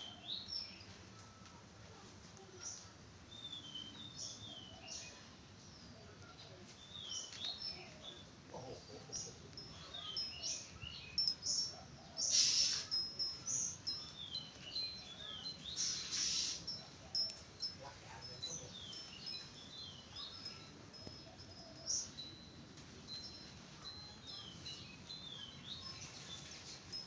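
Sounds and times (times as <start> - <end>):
bird singing whistled notes: 3.3 - 5.2, 10.0 - 17.4
bird rasping hiss: 12.2 - 13.1, 15.7 - 16.8.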